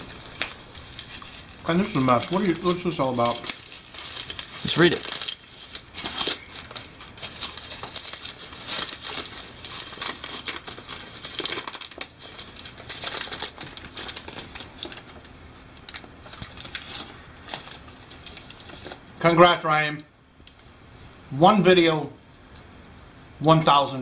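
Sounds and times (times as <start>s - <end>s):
paper crinkling: 0.0s - 19.1s.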